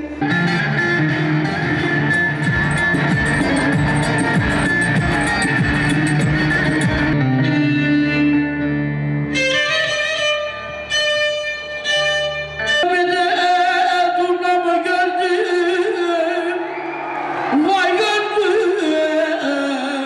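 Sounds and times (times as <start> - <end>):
violin melody with vibrato: 0.0 - 13.6
plucked lute accompaniment: 0.1 - 12.9.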